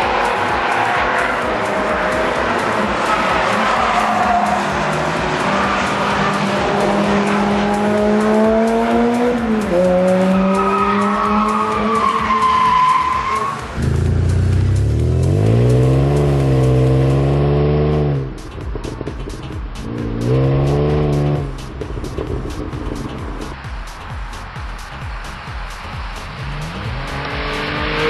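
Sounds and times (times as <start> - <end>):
car engine at full throttle: 0.0 - 28.0
engine revving at exhaust: 13.8 - 18.4, 19.8 - 21.6, 26.2 - 28.0.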